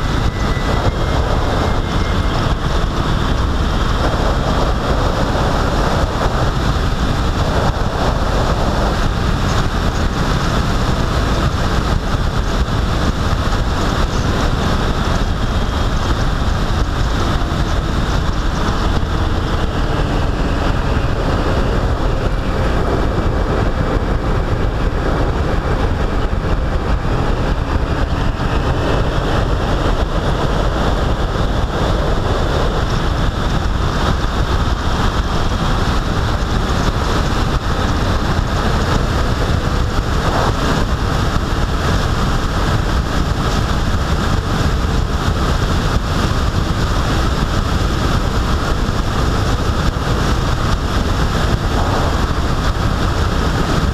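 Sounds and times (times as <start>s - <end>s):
vehicle road noise: 0.0s - 53.9s
wind buffeting microphone: 0.0s - 53.9s
wind rush: 0.0s - 53.9s.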